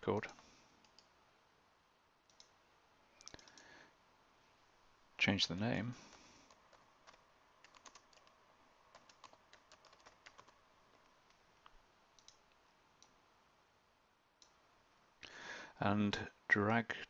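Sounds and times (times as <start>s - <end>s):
faint keyboard typing: 0.2s - 1.2s, 2.2s - 2.6s, 3.2s - 3.8s, 6.0s - 13.2s.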